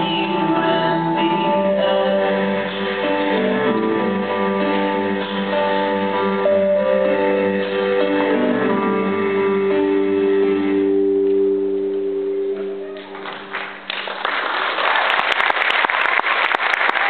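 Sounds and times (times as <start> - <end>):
audience applause: 12.9 - 17.0.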